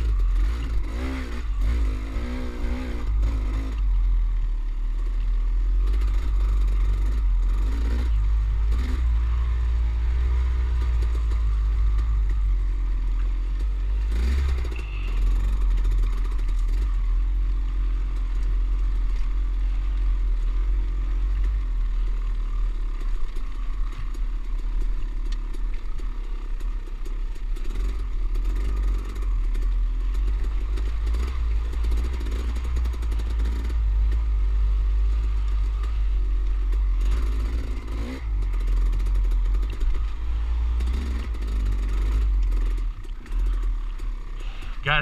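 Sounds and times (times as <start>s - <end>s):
dirt bike engine blipping throttle: 5.7s - 19.5s, 27.6s - 45.0s
clatter over loose rock: 40.8s - 45.0s.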